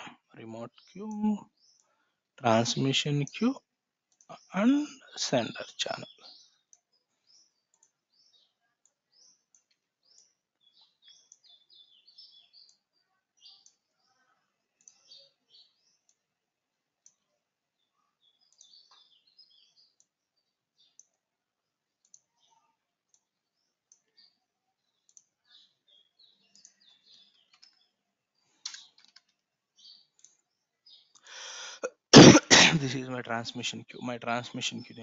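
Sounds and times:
soft clicks: 0:04.1 - 0:04.5, 0:06.7 - 0:08.0, 0:08.8 - 0:11.6, 0:12.2 - 0:12.8, 0:13.6 - 0:13.9, 0:14.7 - 0:16.2, 0:17.0 - 0:17.3, 0:18.4 - 0:19.1, 0:20.8 - 0:21.2, 0:21.9 - 0:24.3, 0:25.0 - 0:25.8, 0:26.4 - 0:27.9, 0:28.6 - 0:29.4, 0:30.0 - 0:30.4
faint high chirps: 0:04.2 - 0:16.2.

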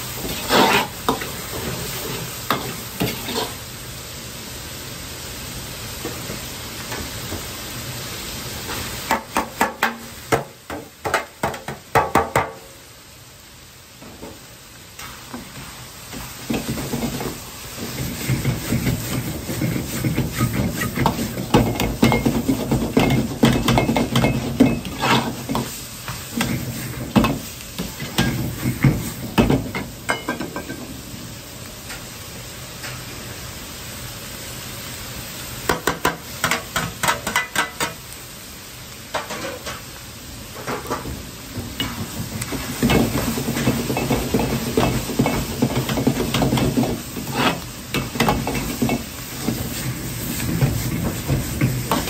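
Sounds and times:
meat sizzling in a wok: 0:00.0 - 0:52.0
metal utensil clanking on pan: 0:17.9 - 0:25.7, 0:29.4 - 0:30.8, 0:35.7 - 0:38.0.

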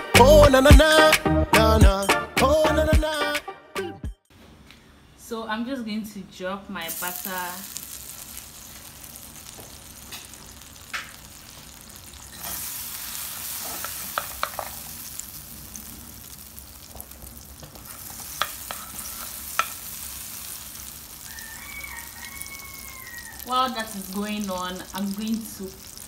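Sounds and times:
butter sizzling in a frying pan: 0:06.9 - 0:26.0
wooden spoon clicking on pan: 0:19.6 - 0:19.8.

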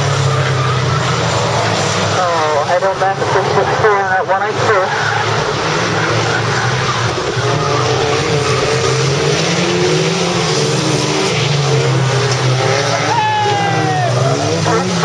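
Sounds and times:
racing car engines: 0:00.0 - 0:15.0.

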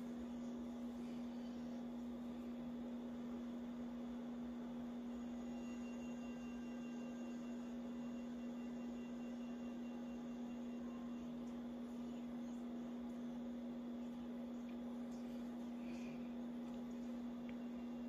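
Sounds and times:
steady electrical hum: 0:00.0 - 0:18.0.

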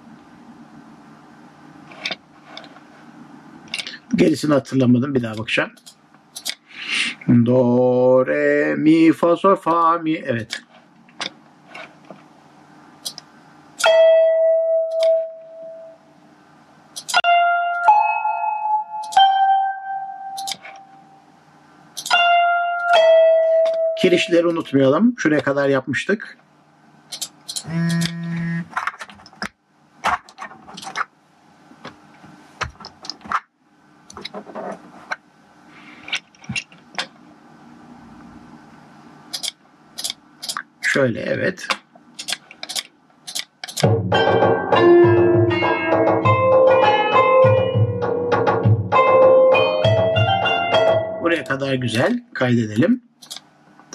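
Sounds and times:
computer mouse and keyboard clicks: 0:05.8 - 0:06.6, 0:20.4 - 0:20.8, 0:27.1 - 0:28.2, 0:39.3 - 0:40.7, 0:42.2 - 0:43.9, 0:53.2 - 0:53.4
synthesized instrument note: 0:27.6 - 0:28.7, 0:44.0 - 0:51.5
short clicks: 0:39.3 - 0:40.7, 0:53.2 - 0:53.5.

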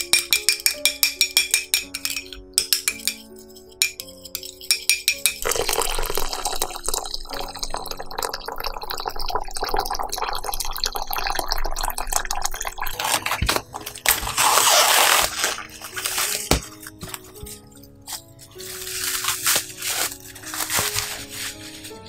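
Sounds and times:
water pouring into a pot: 0:05.4 - 0:16.3
cling film crinkling: 0:12.9 - 0:22.0.

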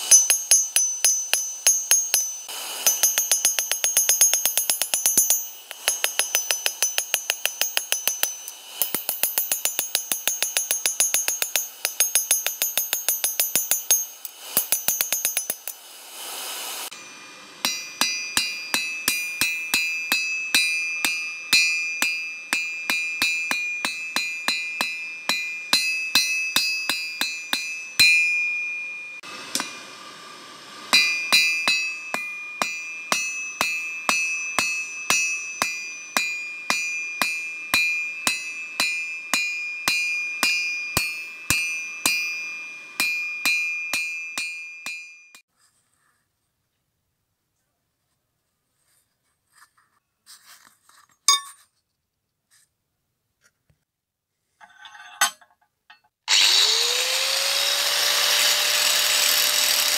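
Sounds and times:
hammer striking hot steel on anvil: 0:00.0 - 0:30.0, 0:30.8 - 0:45.5.

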